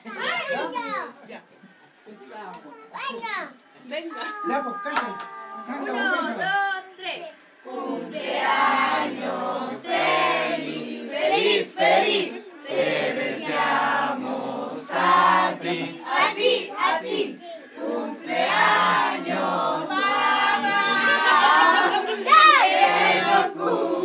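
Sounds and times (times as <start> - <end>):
family singing a birthday tune: 4.0 - 24.0.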